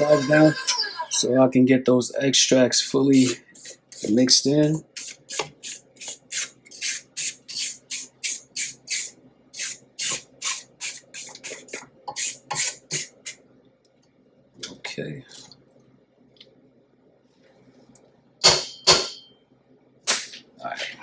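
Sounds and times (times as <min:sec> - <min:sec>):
spatula scraping steel bowl: 0:03.2 - 0:13.1.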